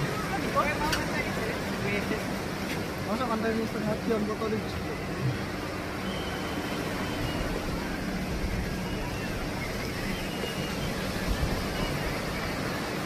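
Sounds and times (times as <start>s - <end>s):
rushing outdoor noise: 0.0s - 13.0s
low unsteady rumble: 4.9s - 12.9s.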